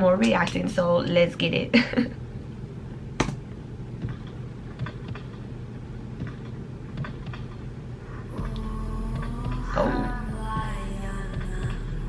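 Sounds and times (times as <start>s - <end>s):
low rumbling drone: 8.0s - 12.0s.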